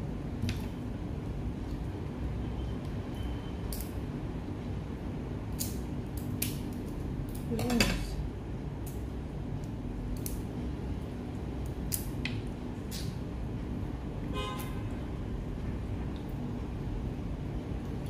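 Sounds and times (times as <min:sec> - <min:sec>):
crab shell cracking: 0:08.8 - 0:10.6, 0:11.6 - 0:13.2.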